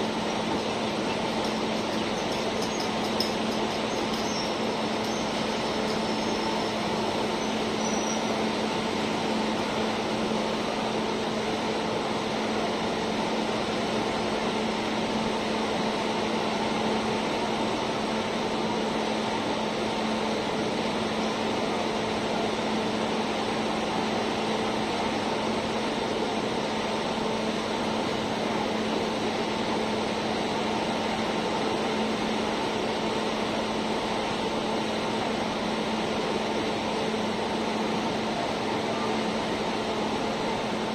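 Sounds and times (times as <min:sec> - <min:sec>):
train coaches rolling past: 0:00.0 - 0:24.3
air conditioning hum: 0:00.0 - 0:40.9.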